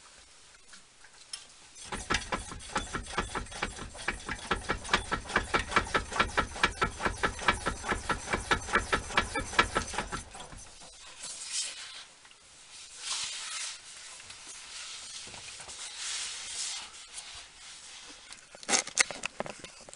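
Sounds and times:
rapid axle knocking: 1.8 - 10.9.

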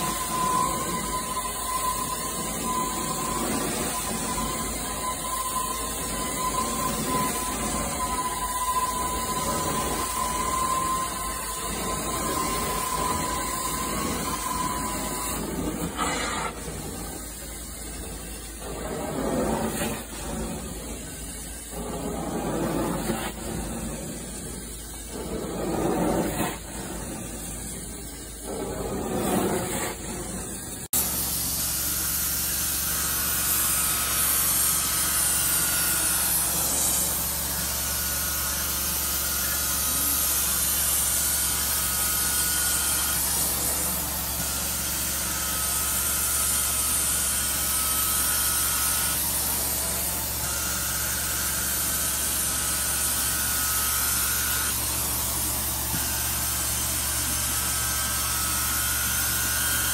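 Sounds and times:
high whistle: 0.0 - 18.4
carpet cleaner head whooshing: 0.0 - 31.2
suction wand hissing: 0.0 - 50.4.

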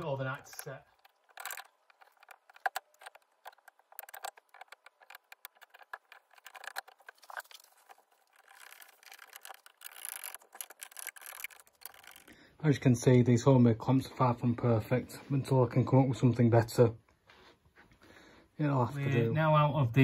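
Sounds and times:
wooden strips clicking and tapping: 0.0 - 12.3
screwdriver turning clamp screw: 0.9 - 12.3.

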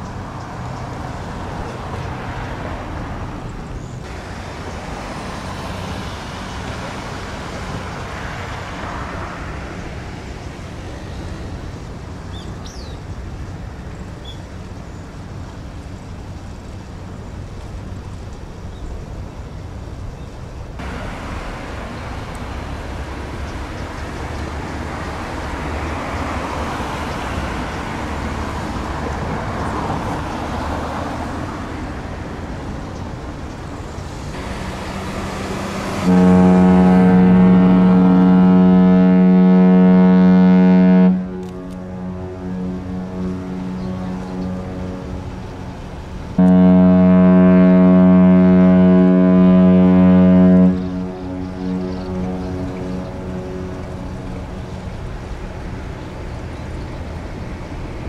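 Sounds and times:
road traffic passing: 0.0 - 58.0
ship's horn blast: 20.8 - 32.6, 34.2 - 58.0.

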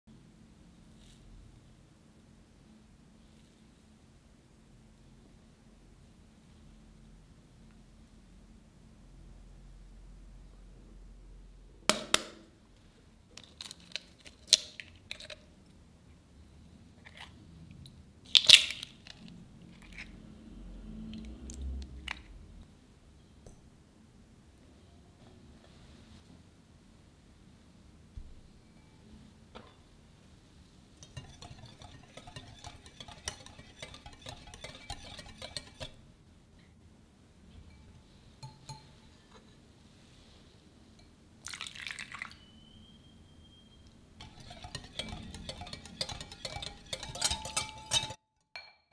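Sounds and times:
eggshells cracking against glass bowl: 18.3 - 20.1
whisk clinking against glass bowl: 31.0 - 36.0, 37.7 - 39.0, 44.2 - 48.7.

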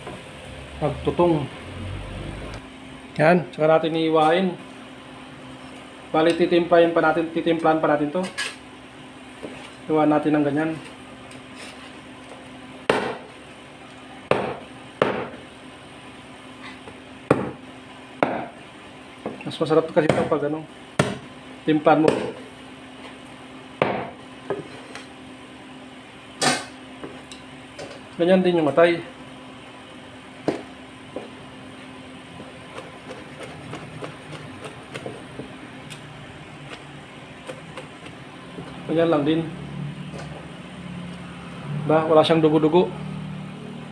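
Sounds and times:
cleaver chopping on cutting board: 12.9 - 13.3, 14.3 - 15.4, 17.3 - 17.6, 20.0 - 20.3, 21.0 - 21.3, 22.0 - 22.4, 23.8 - 24.6.

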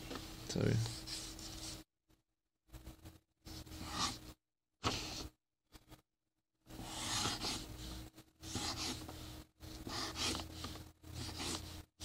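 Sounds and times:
marker dragged across paper: 0.9 - 1.8, 3.5 - 5.3, 6.7 - 11.9.

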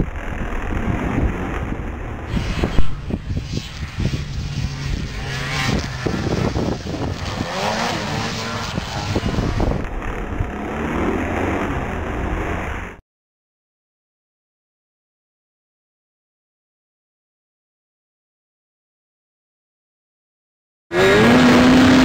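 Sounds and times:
snowmobile engine passing by: 0.0 - 13.0, 20.9 - 22.0.

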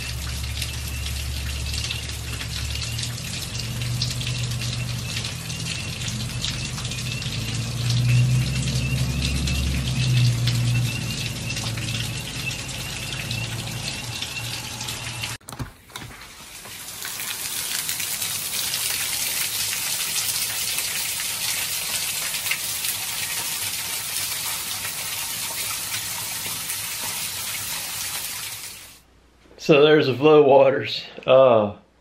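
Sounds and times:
heavy rain pouring: 0.0 - 15.4
water streaming off roof edge: 0.0 - 29.0.

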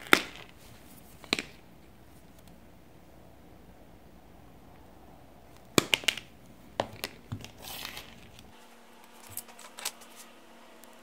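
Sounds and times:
wire rustling: 4.8 - 11.0.

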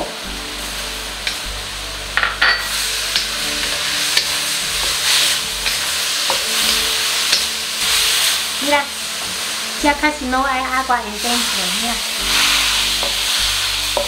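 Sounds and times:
food sizzling in a wok: 0.0 - 14.0
spatula scraping a wok: 2.2 - 9.8, 11.1 - 14.0.

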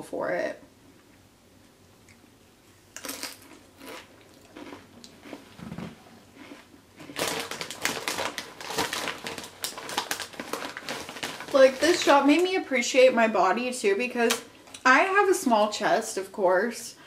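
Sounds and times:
crunchy chewing of chips: 2.9 - 12.0
plastic chip bag crinkling: 6.4 - 12.6.

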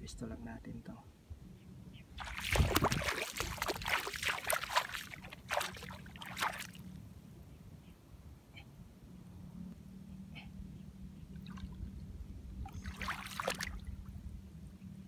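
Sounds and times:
bare feet splashing through water: 2.2 - 6.9, 12.7 - 13.9.

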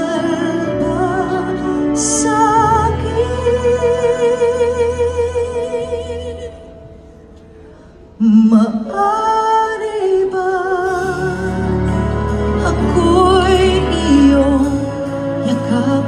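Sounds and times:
woman singing with vibrato: 0.0 - 6.8, 8.2 - 16.0
backing band: 10.8 - 16.0.

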